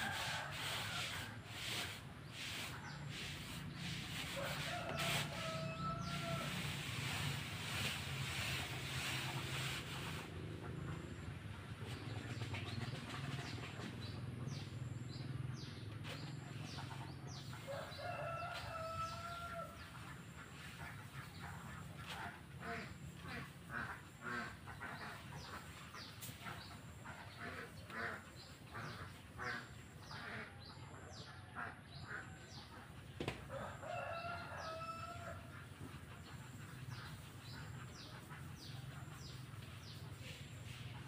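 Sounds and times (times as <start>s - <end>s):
chickens clucking: 0.0s - 41.0s
rooster crowing: 4.4s - 6.7s, 17.7s - 19.8s, 33.6s - 35.5s.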